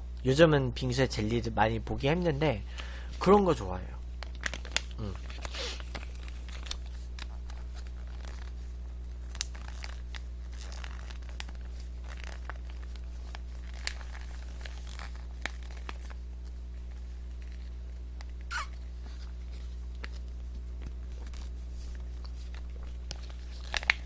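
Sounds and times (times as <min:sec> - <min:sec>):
steady low hum: 0:00.0 - 0:24.0
small clicks and crackles: 0:04.2 - 0:18.5, 0:19.1 - 0:24.0
plastic pouch crinkling: 0:04.2 - 0:24.0
sucking from pouch: 0:18.5 - 0:19.4.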